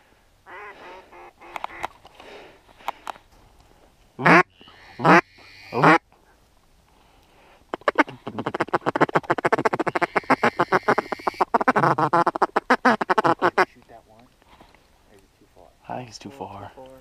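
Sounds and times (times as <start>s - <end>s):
duck call clucking notes: 0.5s - 1.9s, 4.2s - 6.0s, 7.7s - 13.7s
duck call quacks: 0.5s - 1.9s, 4.2s - 6.0s, 7.7s - 13.7s.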